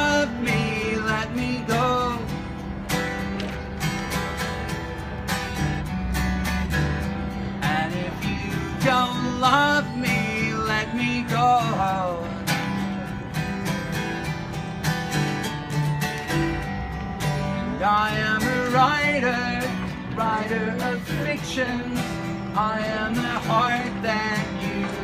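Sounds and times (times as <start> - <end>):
man singing: 0.0 - 2.3, 7.6 - 12.5, 17.5 - 25.0
acoustic guitar strumming: 0.0 - 25.0.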